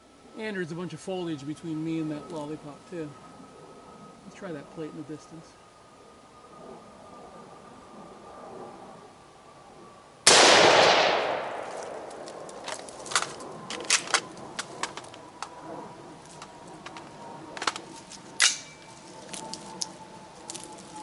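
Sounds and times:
rifle shot: 10.3 - 12.3
small clicks and knocks: 11.8 - 15.6, 16.3 - 19.9.

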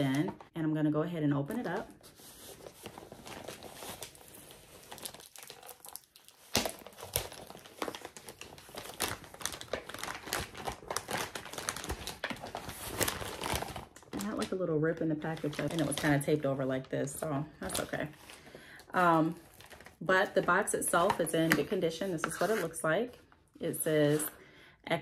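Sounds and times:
paper mailer crinkling: 1.6 - 14.6.

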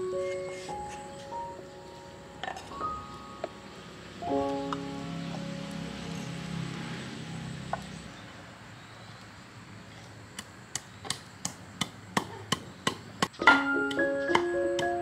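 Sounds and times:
background music: 0.0 - 7.6, 13.4 - 15.0.

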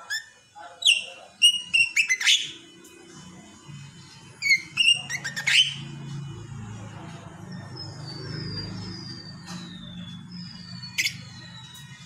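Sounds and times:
bird shrill chirps: 0.0 - 2.6, 4.4 - 6.0, 7.5 - 12.0
background music with low tones: 0.0 - 12.0.

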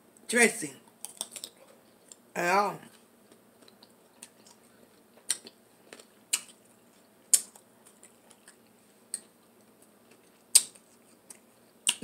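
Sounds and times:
faint chewing ticks: 3.3 - 12.0.

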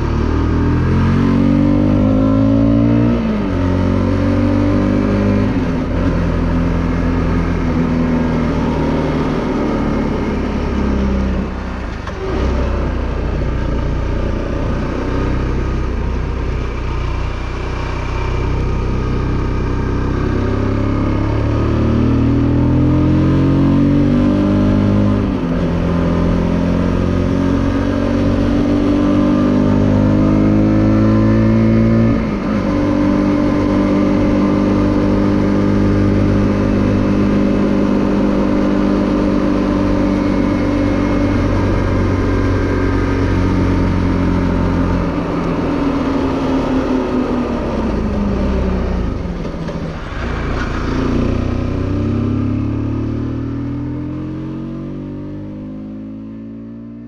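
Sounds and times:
motorcycle accelerating: 0.0 - 57.0.

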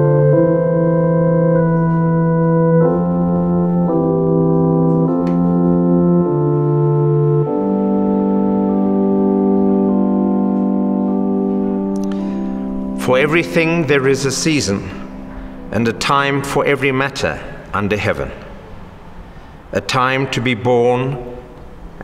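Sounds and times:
organ playing slow chords: 0.0 - 22.0.

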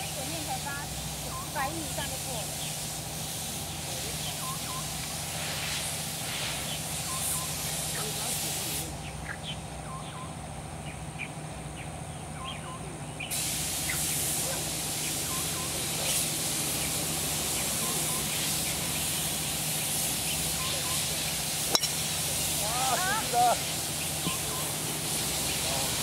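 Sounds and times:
loud even hiss: 0.0 - 9.2, 13.2 - 26.0
bird chirps: 1.2 - 1.7, 3.6 - 5.0, 6.6 - 8.1, 9.0 - 14.2, 15.0 - 22.6, 23.6 - 25.8.

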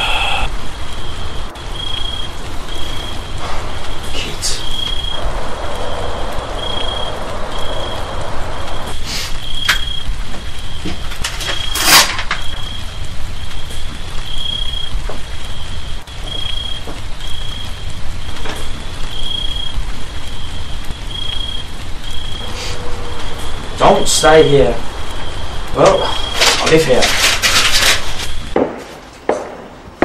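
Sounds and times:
low rumble and hiss: 0.0 - 28.7
loud scraping noise: 22.4 - 24.8, 26.2 - 28.5.

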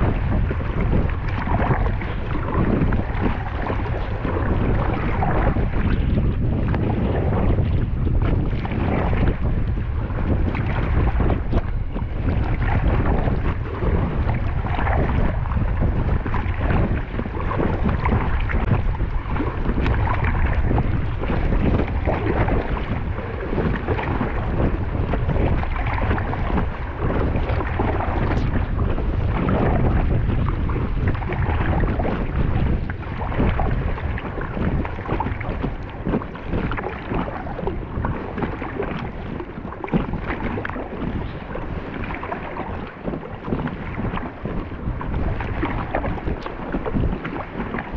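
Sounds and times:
water splashing against kayak: 0.0 - 47.9
wind buffeting microphone: 0.0 - 47.9.

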